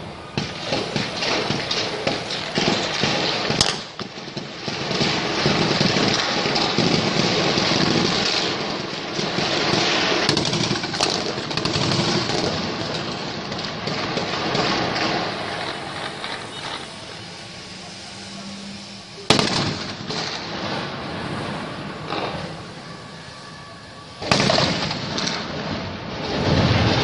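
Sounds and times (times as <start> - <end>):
heavy overlapping gunfire: 0.3 - 17.1, 19.2 - 21.0, 24.2 - 27.0
loud explosive bang: 19.3 - 22.7, 24.2 - 27.0.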